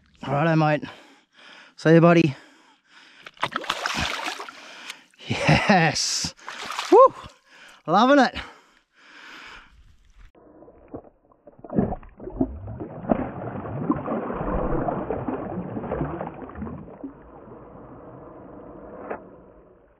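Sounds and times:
water sloshing and gurgling: 0:03.0 - 0:05.2, 0:06.3 - 0:07.8, 0:09.6 - 0:19.9.

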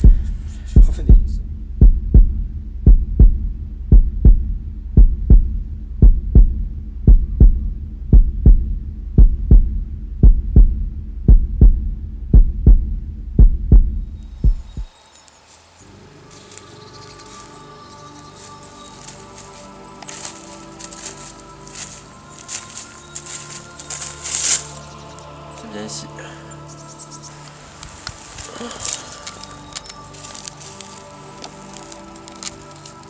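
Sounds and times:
faint music: 0:00.0 - 0:01.6, 0:14.0 - 0:33.0
heartbeat thumps: 0:00.0 - 0:14.9
low hum: 0:00.0 - 0:15.0.

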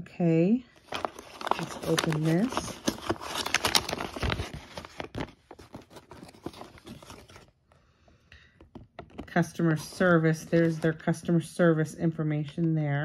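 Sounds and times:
paper rustling and crackling: 0:00.8 - 0:07.6, 0:08.7 - 0:11.1.

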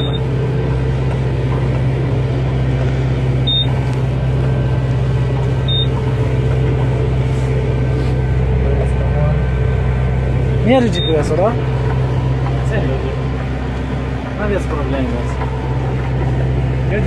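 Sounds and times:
tractor engine running: 0:00.0 - 0:17.0
short high electronic beeps: 0:03.5 - 0:03.8, 0:05.7 - 0:05.9.

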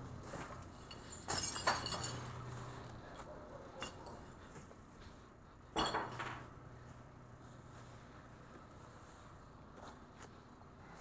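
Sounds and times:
cans and glass clinking: 0:00.8 - 0:02.4.

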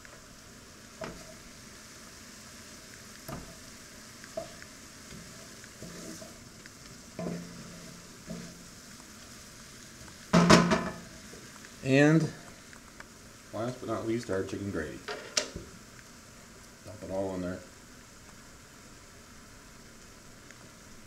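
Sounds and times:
low sizzle in a skillet: 0:00.0 - 0:21.0
wooden spatula stirring and scraping: 0:00.9 - 0:01.6, 0:03.0 - 0:10.3.

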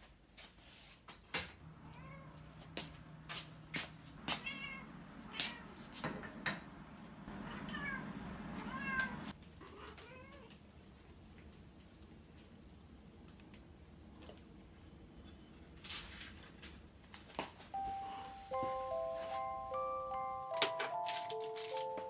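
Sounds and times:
cat meowing: 0:04.4 - 0:05.8, 0:07.4 - 0:10.5.

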